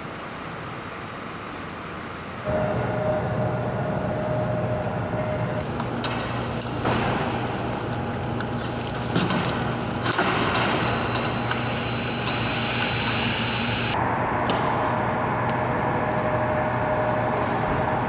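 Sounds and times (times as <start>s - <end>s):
machinery drone with low hum: 0.0s - 18.0s
thin whine: 2.4s - 5.8s.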